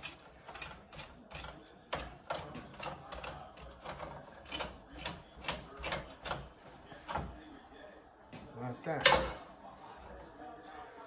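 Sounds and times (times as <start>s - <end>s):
knife cutting and scraping meat: 0.0s - 7.6s.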